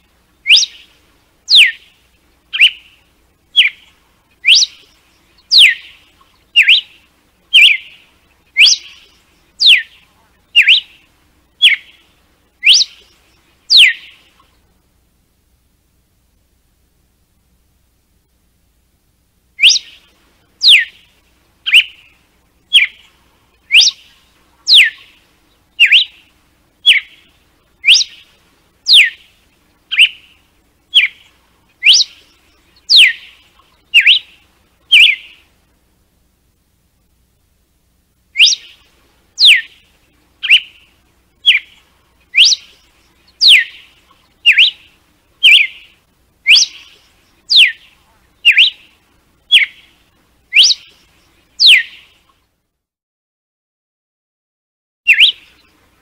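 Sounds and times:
bird whistling sharp notes: 0.4 - 0.9, 1.5 - 1.9, 2.5 - 8.0, 8.6 - 10.0, 10.6 - 11.0, 11.6 - 12.0, 12.6 - 14.3, 19.6 - 21.1, 21.7 - 23.1, 23.7 - 24.1, 24.7 - 25.2, 25.8 - 27.2, 27.8 - 28.3, 28.9 - 29.3, 29.9 - 35.4, 38.4 - 39.8, 40.4 - 48.9, 49.5 - 49.9, 50.5 - 51.0, 51.6 - 52.2, 55.1 - 55.7.

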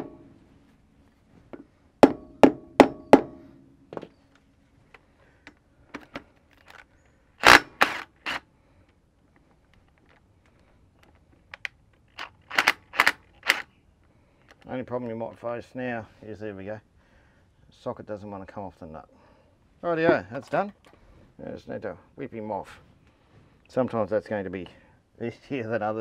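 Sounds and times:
impact wrench hammering: 2.0 - 3.4.

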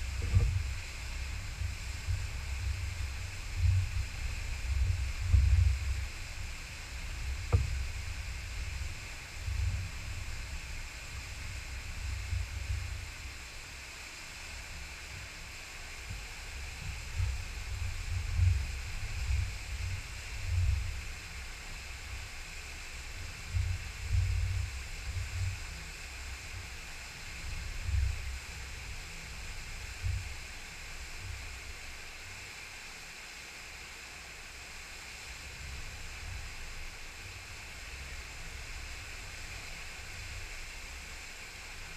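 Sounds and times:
wind on microphone: 0.0 - 13.1.

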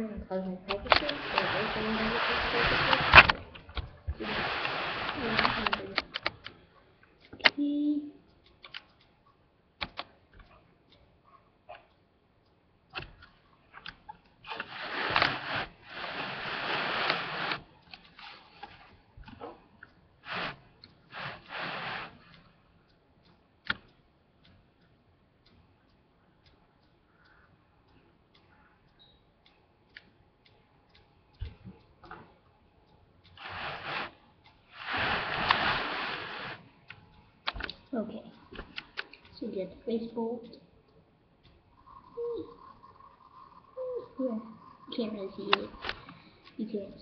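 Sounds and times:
faint regular ticking: 0.0 - 47.0
rustling and handling noise: 0.6 - 7.6, 13.0 - 22.6, 33.3 - 39.8
light clicks: 0.7 - 7.6, 8.3 - 9.2.

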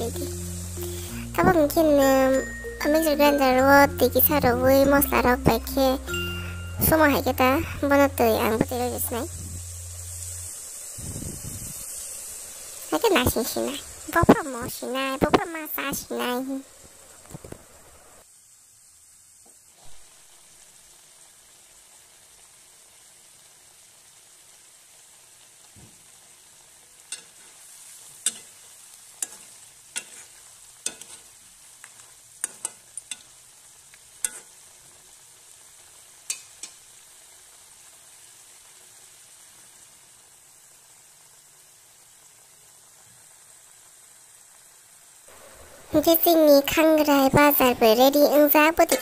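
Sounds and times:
curry sizzling in a pan: 0.0 - 49.0
spatula scraping a metal pan: 29.2 - 31.3.

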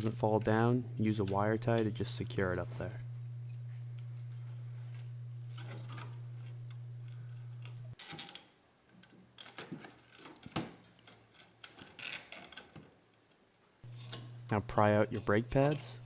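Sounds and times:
steady low hum: 0.0 - 8.0, 13.8 - 16.0.

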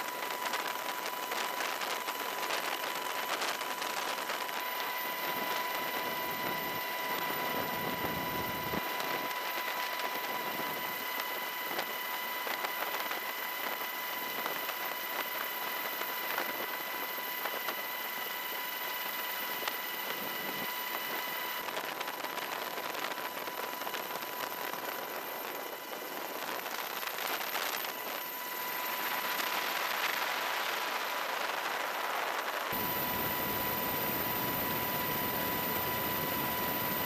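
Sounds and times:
helicopter turbine and rotor noise: 0.0 - 37.0.

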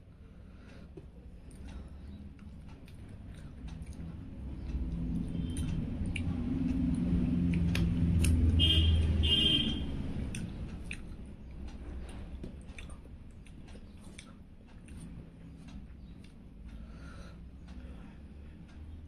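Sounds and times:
person chewing and eating: 1.2 - 9.2, 10.0 - 16.8.

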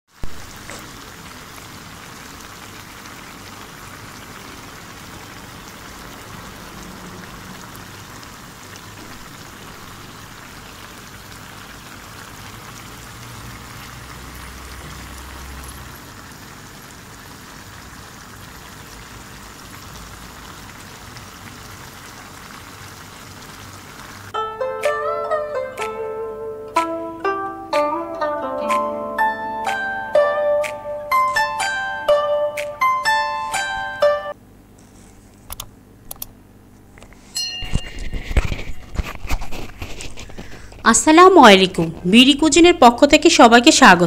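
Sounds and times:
curry bubbling in a pan: 0.1 - 24.4.

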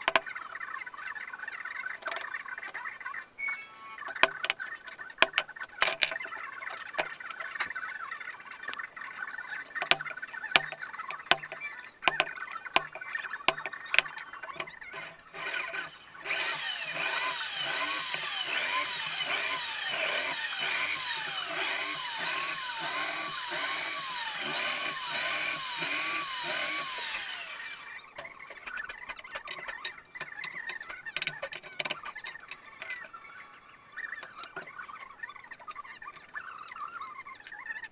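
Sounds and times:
wooden blocks clicking: 0.0 - 0.3, 2.0 - 2.8, 4.0 - 7.8, 9.6 - 33.2, 34.2 - 34.7
electric drill boring into wood: 14.5 - 28.0.

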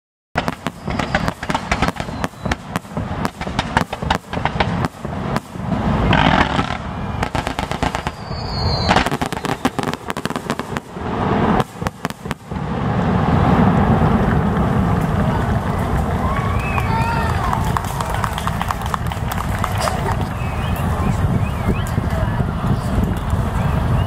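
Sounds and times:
high-pitched firework whistle: 0.4 - 3.4, 5.4 - 10.9, 20.3 - 22.1
fireworks bangs and crackling: 0.4 - 24.0.

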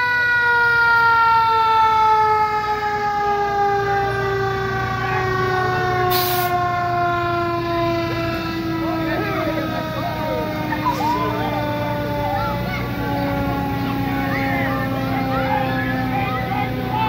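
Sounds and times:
low engine rumble: 0.2 - 17.0
short hiss: 6.1 - 6.6.

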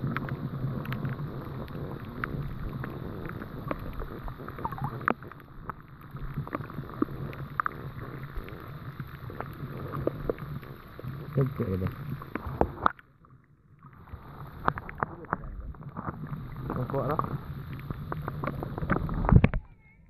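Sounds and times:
sharp clicks and crackles: 0.0 - 19.7
low underwater rumble: 0.0 - 20.0.

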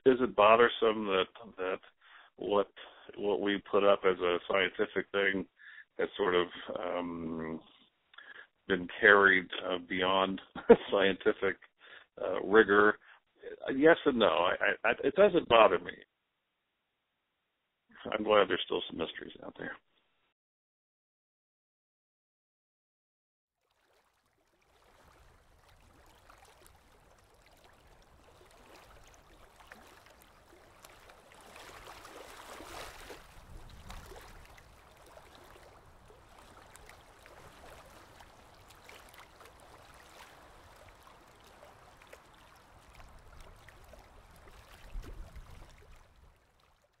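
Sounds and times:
small water clicks: 23.6 - 47.0
water gurgling and lapping: 23.6 - 47.0.

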